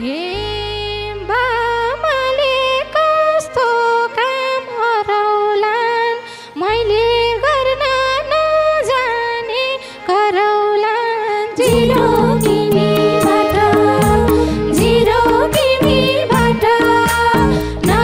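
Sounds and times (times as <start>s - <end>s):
woman singing ornamented melody: 0.0s - 18.0s
instrumental accompaniment: 11.5s - 18.0s
low steady bass note: 11.7s - 18.0s.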